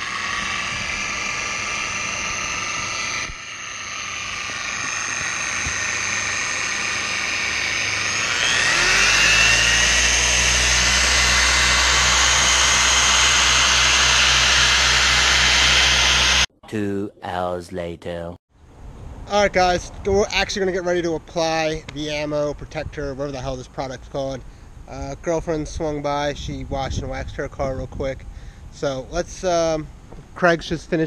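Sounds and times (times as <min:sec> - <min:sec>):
orbital polisher whining: 0:00.0 - 0:16.5.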